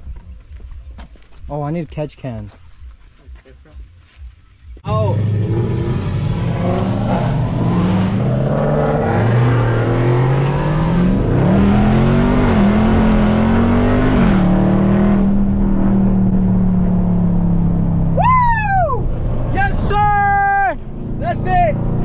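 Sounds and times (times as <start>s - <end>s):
car engine accelerating: 4.8s - 22.0s.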